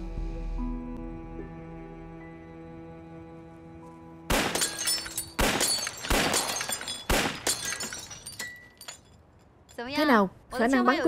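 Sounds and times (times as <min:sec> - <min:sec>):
pistol shots: 0:04.3 - 0:07.8
glass bottle shattering: 0:04.4 - 0:09.2.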